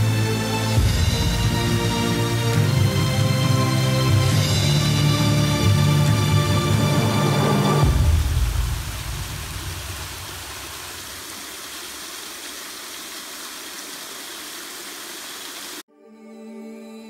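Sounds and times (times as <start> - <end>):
soft music with held notes: 0.0 - 7.9, 15.9 - 17.0
waterfall rushing over rock: 5.3 - 15.8.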